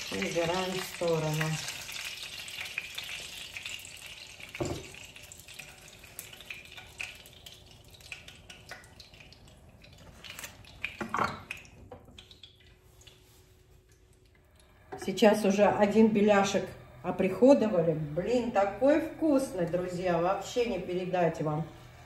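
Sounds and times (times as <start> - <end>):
hot oil sizzling in a frying pan: 0.0 - 13.3.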